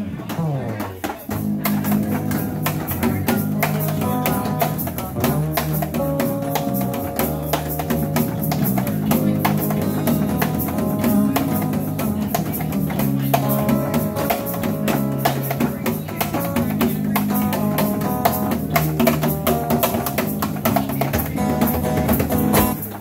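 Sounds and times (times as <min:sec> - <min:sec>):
electric bass: 0:00.0 - 0:22.8
cajon beat: 0:00.0 - 0:23.0
strummed acoustic guitar: 0:00.0 - 0:23.0.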